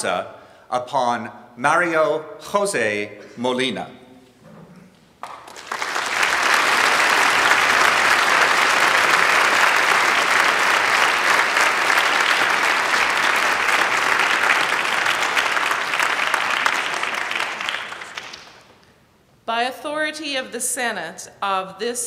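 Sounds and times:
audience applause: 5.2 - 18.8.

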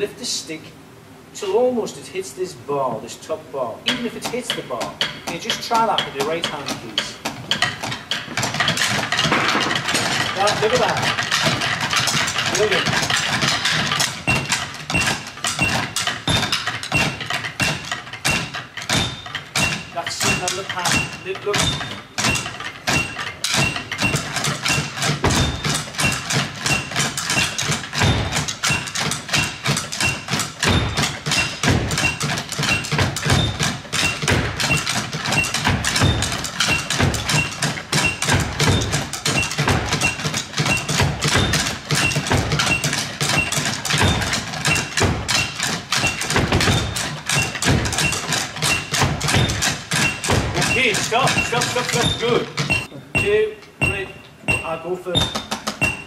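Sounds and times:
drumsticks clattering: 3.9 - 56.0.

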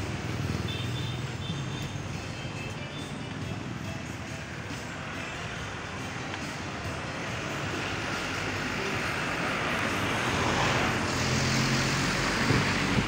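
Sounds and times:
road vehicle passing by: 6.9 - 13.0.

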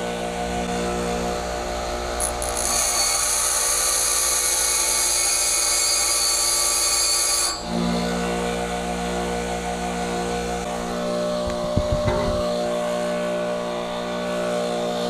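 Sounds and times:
bench grinder humming: 0.0 - 15.0
grinder wheel being dressed: 10.7 - 12.8.

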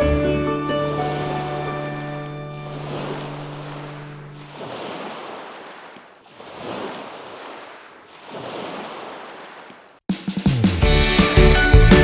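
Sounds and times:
background music: 0.0 - 4.3, 10.1 - 12.0
seawater washing against shore: 2.0 - 10.0.

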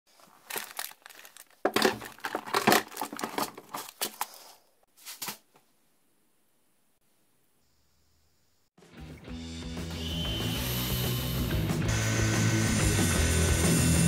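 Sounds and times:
items rattling on shelf: 0.1 - 5.4
plastic box pulled out: 0.2 - 4.4.

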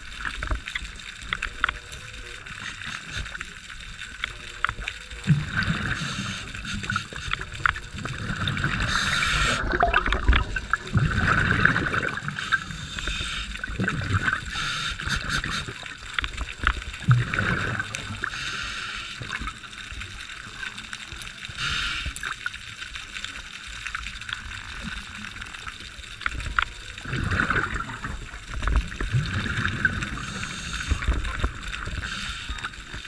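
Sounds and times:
bubbling of exhaled air: 0.0 - 19.7, 24.3 - 33.0
regulator hiss on inhale: 2.5 - 3.5, 5.6 - 7.8, 8.6 - 9.7, 12.2 - 13.8, 14.5 - 15.9, 18.2 - 19.5, 21.5 - 22.3, 30.0 - 33.0.

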